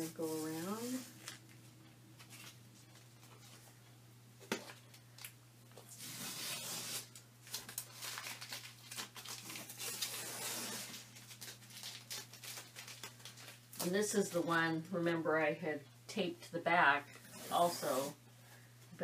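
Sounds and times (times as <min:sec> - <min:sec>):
tape being peeled off: 0:05.2 - 0:13.9.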